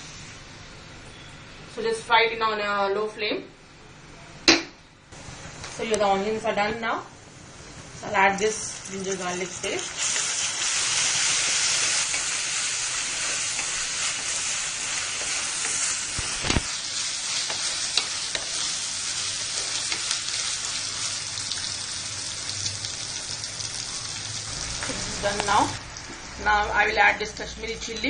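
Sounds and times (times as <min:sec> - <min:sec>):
onions sizzling in hot oil: 0:07.8 - 0:28.0.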